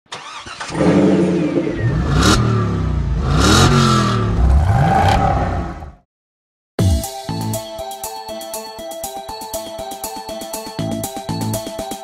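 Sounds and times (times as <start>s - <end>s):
car engine revving: 0.2s - 6.0s.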